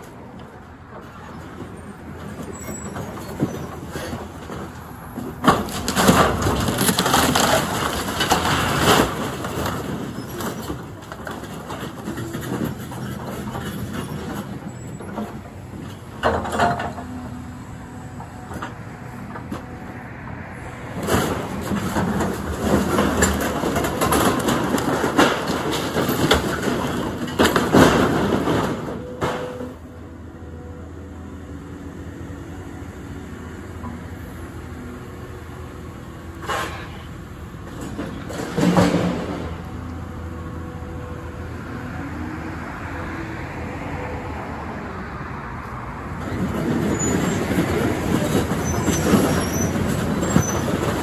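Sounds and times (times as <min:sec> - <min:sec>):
excavator engine running: 0:00.0 - 0:51.0
wood breaking: 0:05.4 - 0:10.1.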